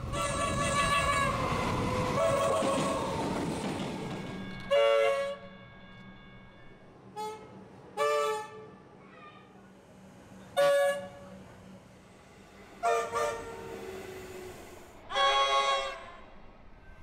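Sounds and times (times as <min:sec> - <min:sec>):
train horn toots: 0:00.0 - 0:01.6, 0:04.3 - 0:08.8, 0:10.4 - 0:11.5, 0:12.8 - 0:16.4
passing train rumble: 0:00.0 - 0:17.0.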